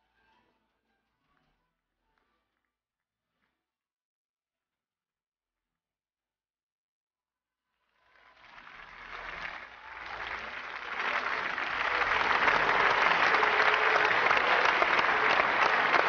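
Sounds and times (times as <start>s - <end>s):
audience applause: 8.1s - 16.0s.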